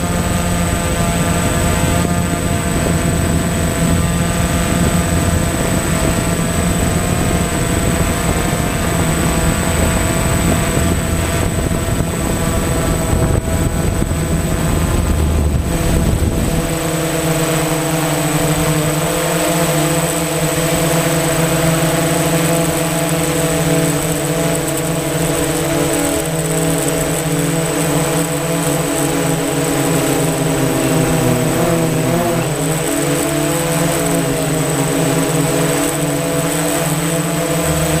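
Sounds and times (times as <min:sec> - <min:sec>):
wind rumble on microphone: 0:00.0 - 0:19.2
thin high whine: 0:00.0 - 0:27.2
drone propellers humming: 0:00.0 - 0:38.0.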